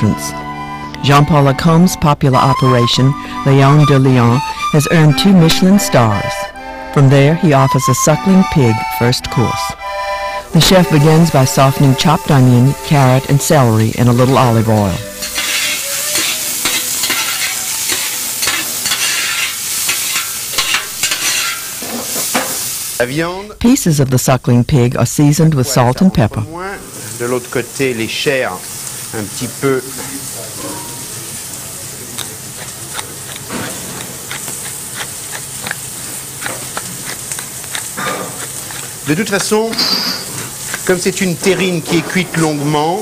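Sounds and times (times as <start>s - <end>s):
vegetables sizzling in oil: 10.1s - 43.0s
spoon scraping and knocking pan: 14.2s - 22.7s, 32.1s - 42.4s
pepper mill grinding clicks: 32.2s - 39.6s.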